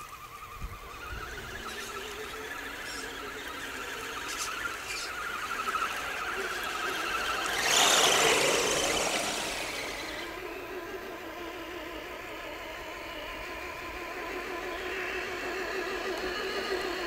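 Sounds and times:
small electric motors whining: 0.0 - 17.0
toy truck driving past: 0.0 - 17.0.

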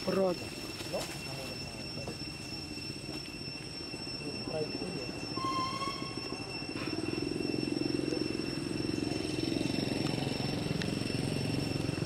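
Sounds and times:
faint high-pitched tone: 0.0 - 12.0
engine throbbing: 5.0 - 12.0.

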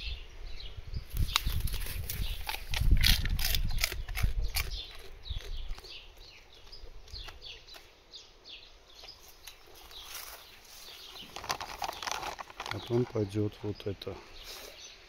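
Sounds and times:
dog crunching a treat: 1.3 - 7.9, 11.2 - 13.2.

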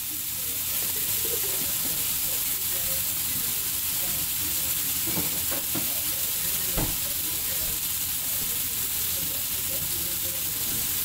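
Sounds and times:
mushrooms sizzling in frying pan: 0.0 - 11.0.

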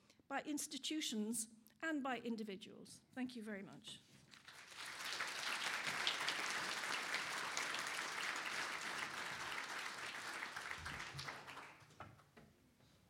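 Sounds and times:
audience clapping: 4.3 - 12.1.

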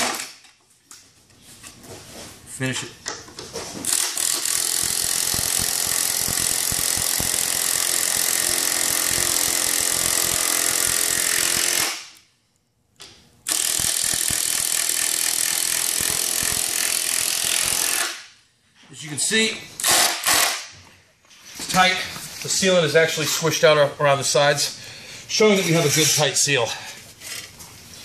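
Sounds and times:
cordless drill driving screw into wood: 0.0 - 0.4, 3.8 - 12.1, 13.5 - 18.2, 19.8 - 20.7.

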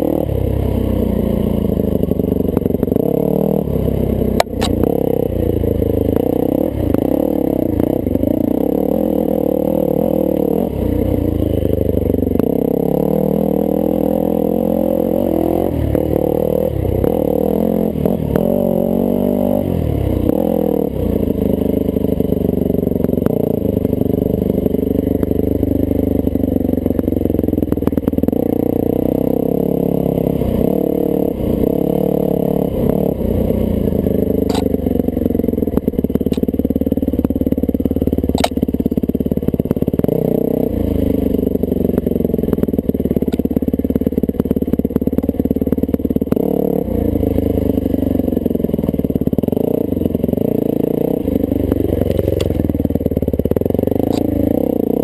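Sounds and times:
motorcycle engine revving: 0.0 - 55.0
bike knocks and clatter: 4.4 - 4.8, 38.4 - 38.8.

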